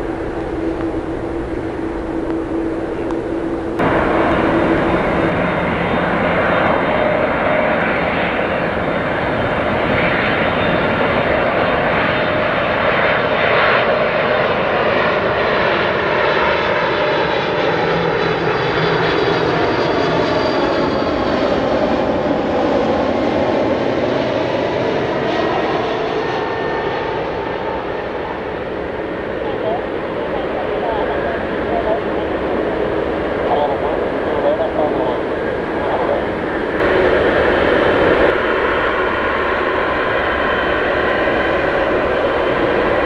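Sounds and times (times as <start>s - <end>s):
high whining engine tones: 0.0s - 12.4s, 28.0s - 43.0s
jet engine roar overhead: 0.0s - 43.0s.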